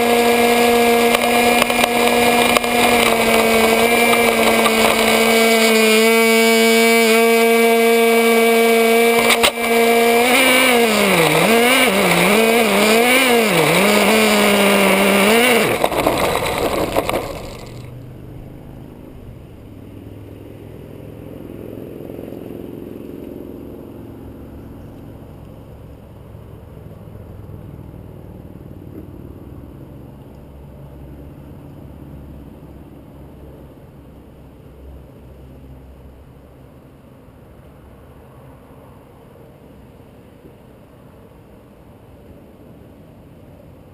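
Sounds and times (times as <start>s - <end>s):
model car engine revving: 0.0s - 18.2s.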